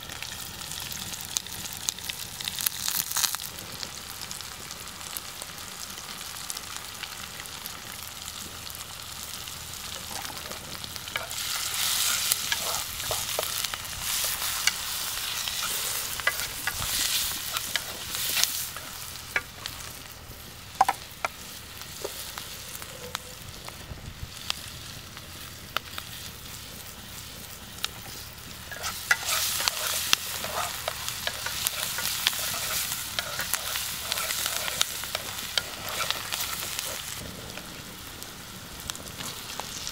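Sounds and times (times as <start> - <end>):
vegetables sizzling in oil: 0.0 - 39.9
wooden spatula scraping wok: 9.9 - 19.9, 26.2 - 37.2.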